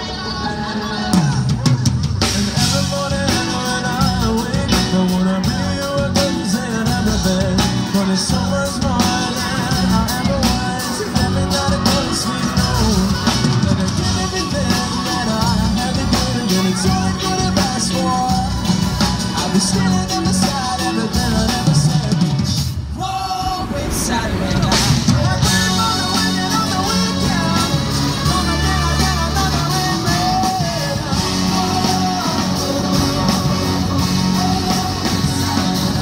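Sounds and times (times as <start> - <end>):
live rock band playing: 0.0 - 23.0, 23.6 - 36.0.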